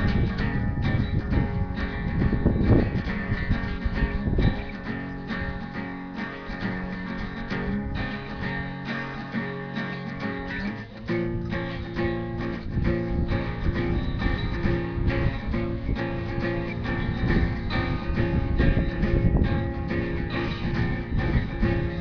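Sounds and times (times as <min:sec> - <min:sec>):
guitar instrumental music: 0:00.0 - 0:22.0.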